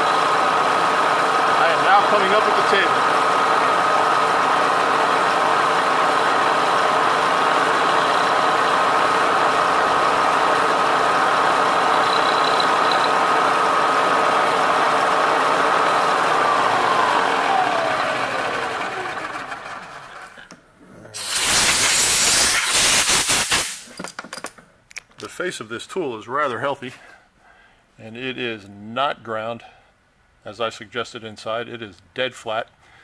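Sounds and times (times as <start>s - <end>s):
milling spindle whine: 6.2s - 19.5s
hissing: 21.2s - 23.9s.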